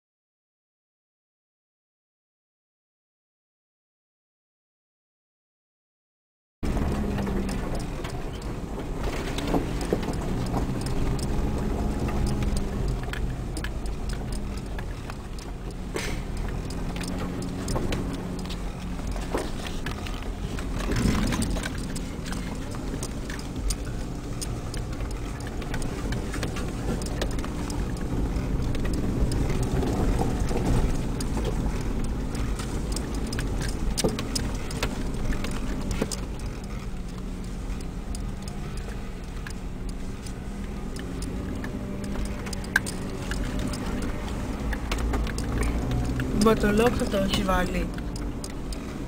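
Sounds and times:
knocks and rattles: 0:06.6 - 0:37.2
car engine running: 0:06.6 - 0:49.0
tyres rumbling on gravel: 0:06.6 - 0:49.0.

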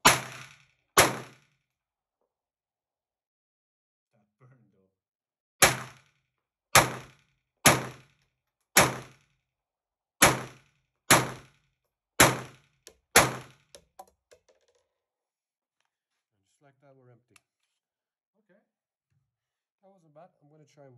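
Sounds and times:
pistol shots: 0:00.0 - 0:01.4, 0:05.6 - 0:06.1, 0:06.8 - 0:08.1, 0:08.8 - 0:09.2, 0:10.2 - 0:11.6, 0:12.2 - 0:13.6.

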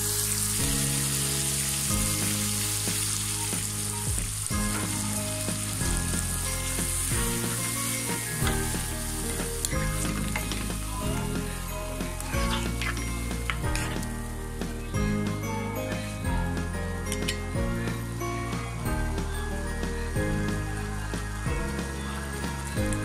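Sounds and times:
masala sizzling in a frying pan: 0:00.0 - 0:14.8.

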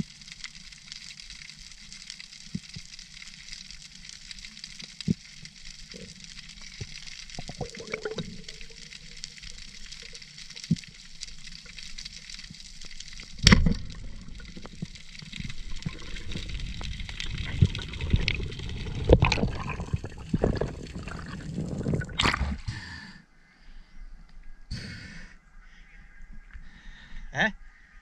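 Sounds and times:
underwater gurgling and sloshing: 0:00.0 - 0:22.8.

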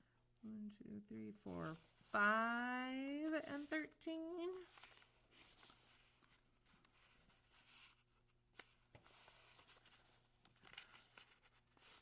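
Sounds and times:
paper rustling and creasing: 0:03.2 - 0:12.0.

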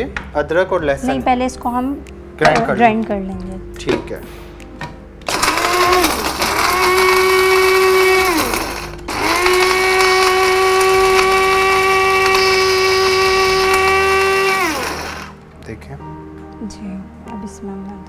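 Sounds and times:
electric spice grinder whining: 0:05.3 - 0:15.4.

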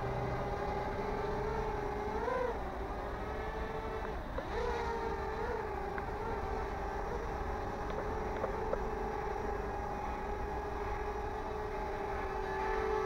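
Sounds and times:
toy drone propellers whining: 0:00.0 - 0:13.0.

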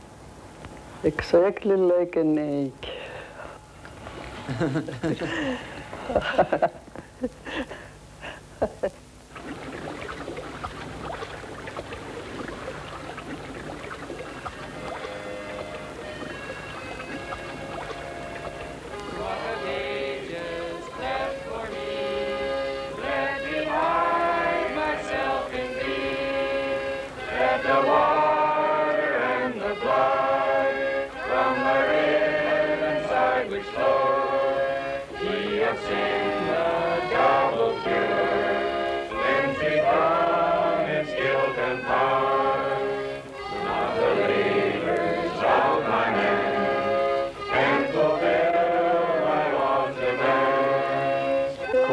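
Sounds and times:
group of voices singing: 0:18.7 - 0:51.9.

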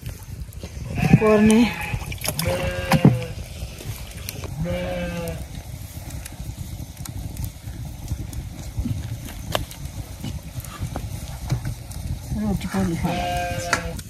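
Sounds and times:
wood fire crackling: 0:00.0 - 0:14.0
livestock bleating: 0:00.9 - 0:03.4, 0:04.6 - 0:05.4, 0:13.0 - 0:14.0.

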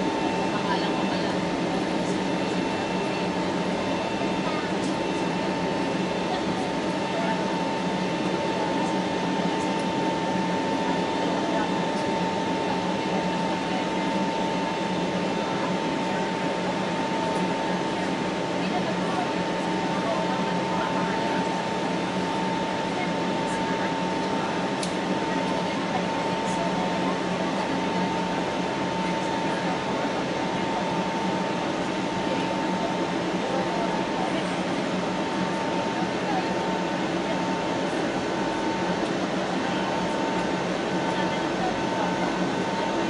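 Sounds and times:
aircraft engine and airflow rush: 0:00.0 - 0:43.0
engine whine: 0:00.0 - 0:43.0.

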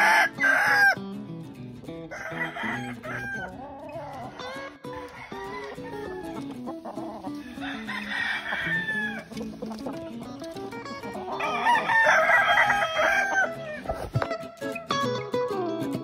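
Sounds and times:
rooster crowing: 0:00.0 - 0:01.0, 0:02.1 - 0:06.5, 0:07.3 - 0:09.3, 0:11.4 - 0:13.8
guitar music: 0:00.0 - 0:16.0.

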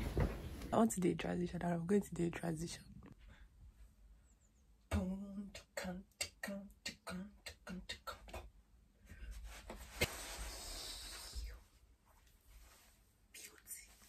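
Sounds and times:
woman beatboxing: 0:04.9 - 0:08.5.

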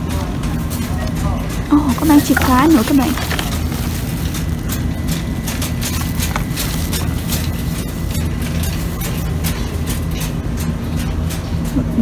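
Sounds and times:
plastic packaging rustling: 0:01.7 - 0:09.0.

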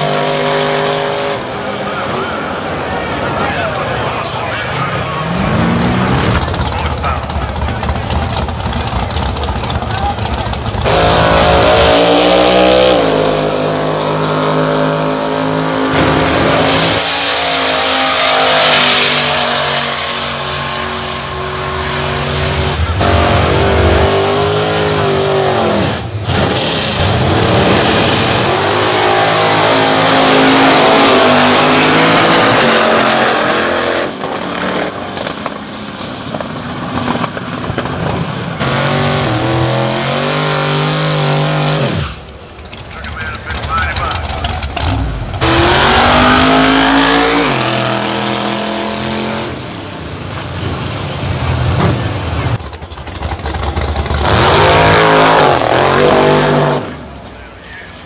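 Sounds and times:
racing car engines revving: 0:00.0 - 0:58.0
tyres spinning in burnouts: 0:01.9 - 0:14.2, 0:36.3 - 0:48.2.

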